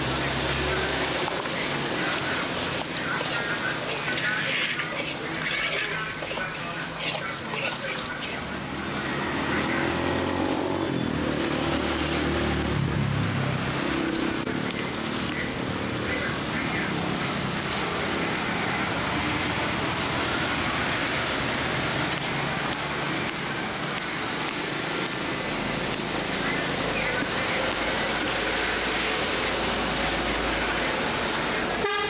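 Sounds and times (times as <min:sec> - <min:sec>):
vehicle engine hum passing: 0:07.8 - 0:31.8.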